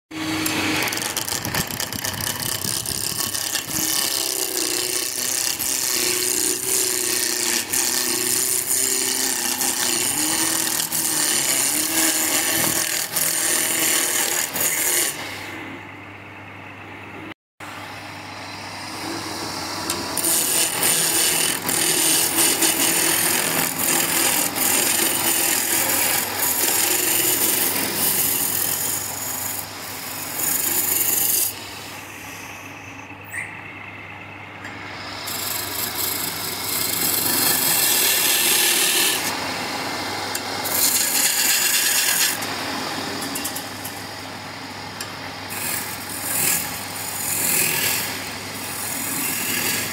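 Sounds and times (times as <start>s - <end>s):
lathe humming: 0.1s - 15.9s, 17.9s - 49.9s
turning tool scraping spinning wood: 0.2s - 15.3s.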